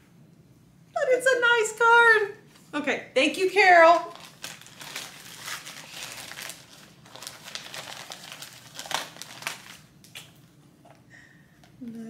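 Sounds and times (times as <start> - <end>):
plastic bag and papers crinkling: 3.6 - 10.3.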